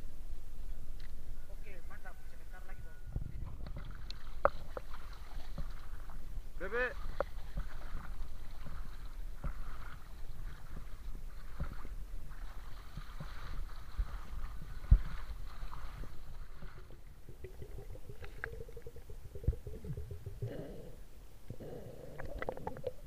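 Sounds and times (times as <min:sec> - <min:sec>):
steady low tone: 0:00.0 - 0:05.0, 0:13.8 - 0:23.0
legs wading through water: 0:03.5 - 0:23.0
muffled underwater sound: 0:06.6 - 0:23.0.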